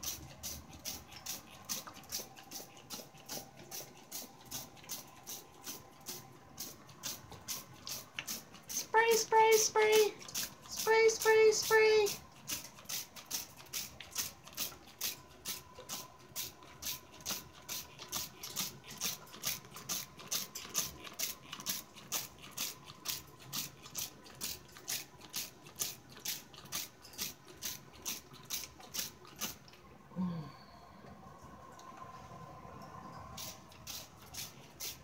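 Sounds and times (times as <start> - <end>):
spray bottle squirts: 33.4 - 35.0.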